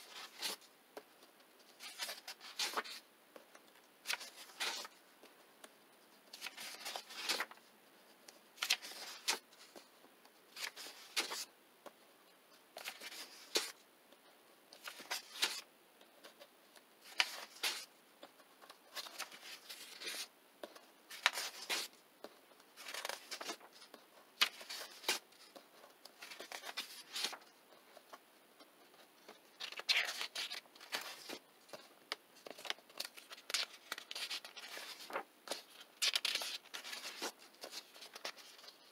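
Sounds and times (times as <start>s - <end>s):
paper pages turning: 0.0s - 3.0s, 3.8s - 5.0s, 6.3s - 7.6s, 8.2s - 11.5s, 12.8s - 13.8s, 14.8s - 28.2s, 28.8s - 38.9s.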